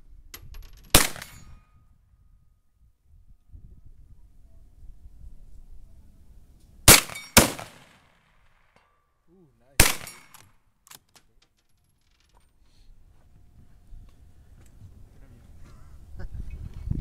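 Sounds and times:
rifle shots: 0.9s - 1.5s, 6.9s - 8.6s, 9.8s - 10.5s.

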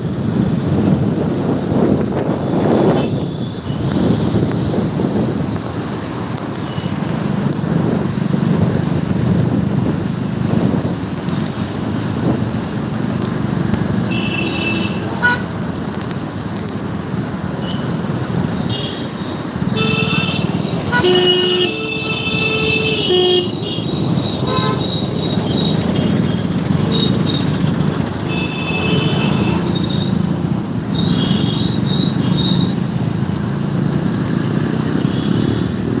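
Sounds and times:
rumble of traffic engines: 0.0s - 36.0s
vehicle horns honking: 14.1s - 15.5s, 18.6s - 27.5s, 28.3s - 30.2s, 30.9s - 32.8s.

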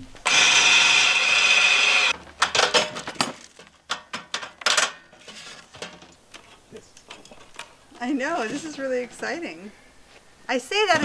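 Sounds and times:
cordless drill: 0.2s - 2.2s
metal clanks and clinks: 2.4s - 7.7s.

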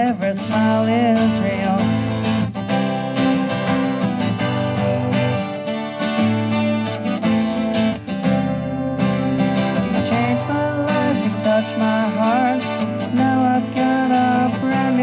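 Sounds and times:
acoustic guitar strumming: 0.0s - 15.0s.

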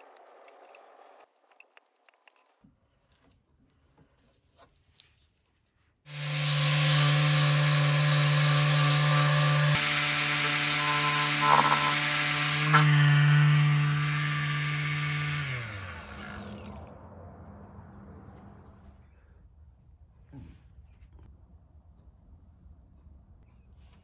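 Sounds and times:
sanding pad hissing on wood: 6.1s - 14.6s
electric sander motor hum: 6.1s - 17.6s.

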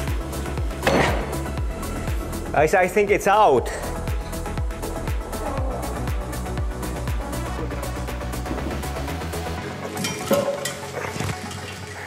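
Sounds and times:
oil splashing: 9.8s - 12.0s.

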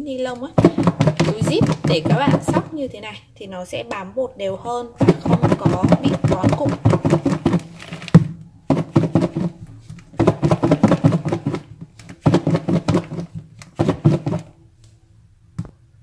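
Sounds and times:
fish rattling in shaken container: 0.6s - 2.8s, 5.0s - 9.6s, 10.2s - 14.5s.

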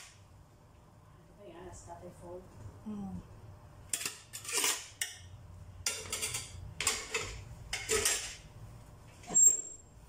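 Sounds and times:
metal spoon scraping colander: 3.9s - 5.0s, 5.9s - 8.4s.

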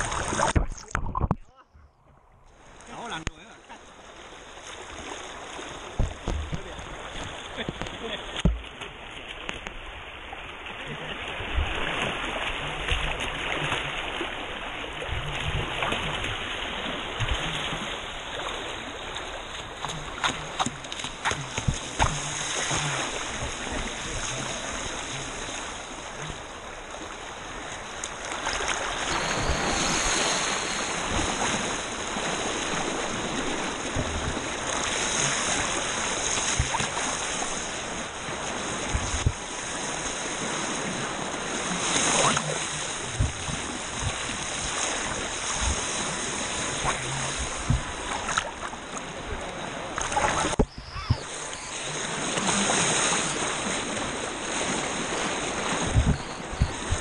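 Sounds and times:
rushing water: 0.0s - 57.0s
high-pitched motor whine: 29.1s - 31.8s.

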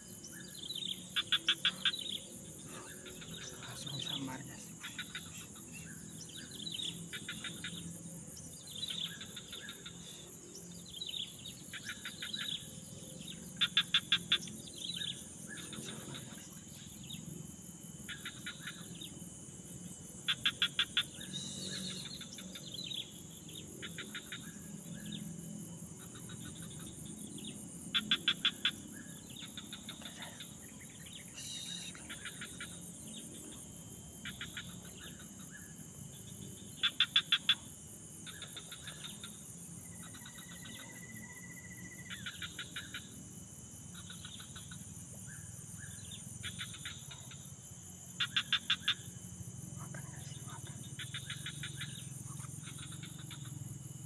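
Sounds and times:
insects shrilling: 1.0s - 7.8s.

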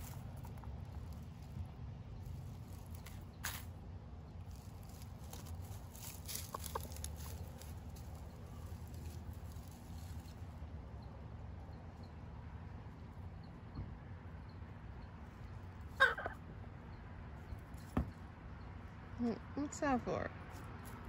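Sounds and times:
chicken clucking softly: 6.3s - 7.7s.

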